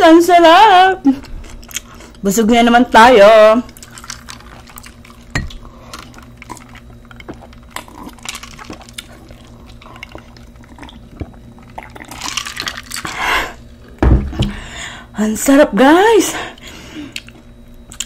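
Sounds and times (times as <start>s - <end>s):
crunchy eating crackles: 1.1s - 2.3s, 3.6s - 14.0s, 16.6s - 18.0s.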